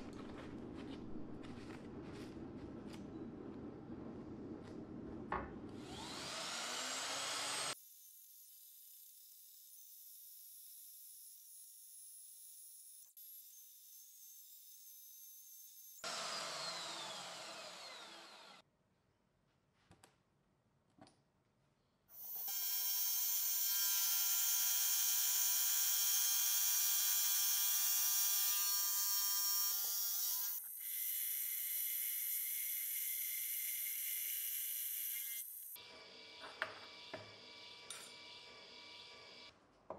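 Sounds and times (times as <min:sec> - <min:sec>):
band saw cutting steel: 0:05.8 - 0:18.6, 0:22.2 - 0:39.5.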